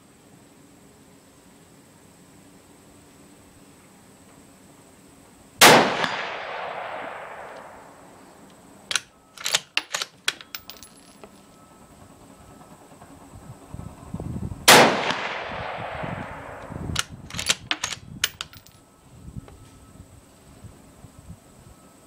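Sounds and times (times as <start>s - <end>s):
rifle shot with echo: 5.6s - 8.2s, 14.7s - 18.0s
rifle bolt clicks and clacks: 8.9s - 11.3s, 17.0s - 18.7s.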